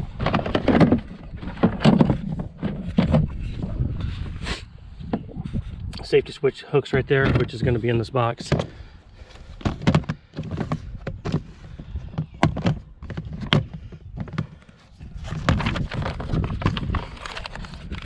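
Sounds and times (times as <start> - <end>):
rustling and clatter: 0.0 - 4.4, 7.2 - 18.0.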